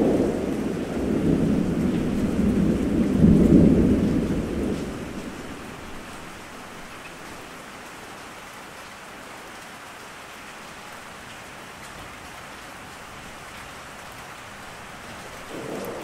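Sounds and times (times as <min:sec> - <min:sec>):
steady rain falling: 0:00.0 - 0:16.0
thunder rolling: 0:15.4 - 0:16.0.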